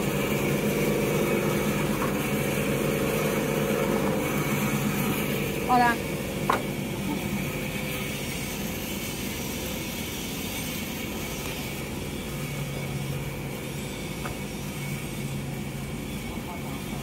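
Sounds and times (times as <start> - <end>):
cutting machine motor hum: 0.0 - 10.0.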